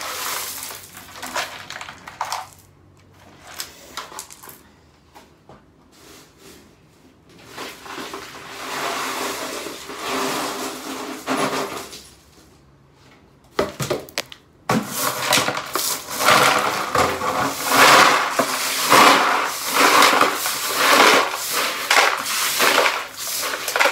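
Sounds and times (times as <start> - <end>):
broom sweeping glass fragments: 0.0 - 1.3, 17.5 - 23.9.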